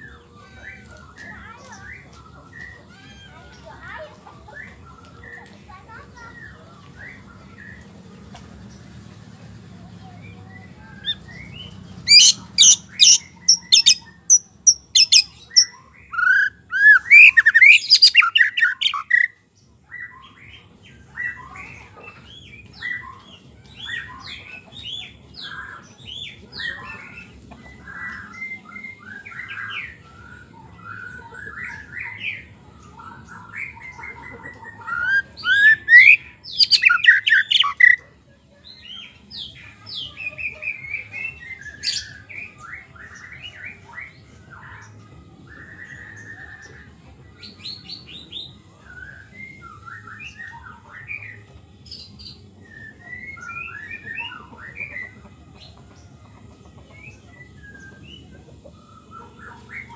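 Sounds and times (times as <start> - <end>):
songbird singing whistles: 10.9 - 20.4, 21.1 - 38.0, 40.0 - 55.2.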